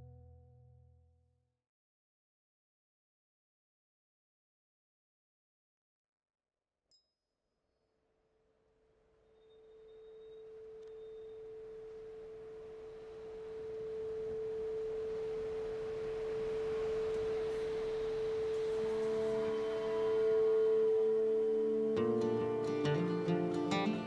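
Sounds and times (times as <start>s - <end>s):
held drone note: 9.9s - 24.0s.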